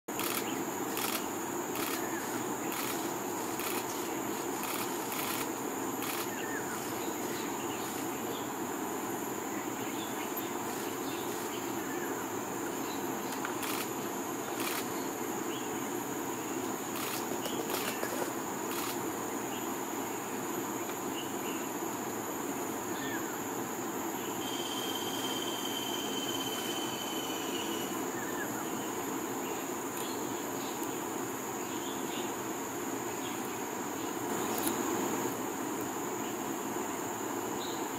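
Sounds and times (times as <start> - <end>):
high-pitched insect drone: 0.1 - 15.4, 16.3 - 19.6, 24.2 - 30.3
thin steady whistle: 24.4 - 27.9.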